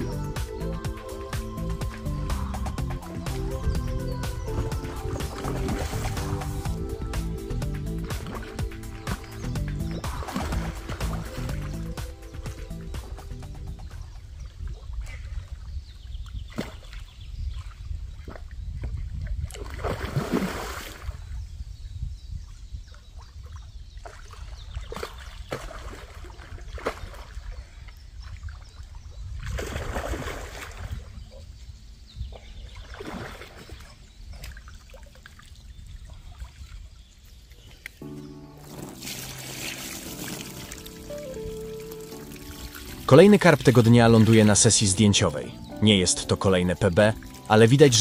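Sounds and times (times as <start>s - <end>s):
fish thrashing and splashing: 4.6s - 6.7s, 8.0s - 13.2s, 38.6s - 44.6s.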